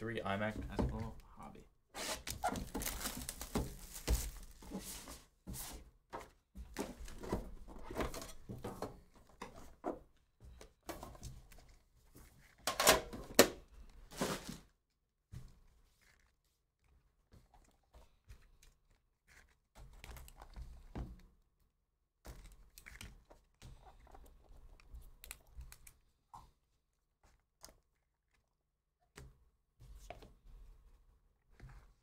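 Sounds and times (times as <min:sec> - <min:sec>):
cardboard box being opened: 0:02.0 - 0:05.3.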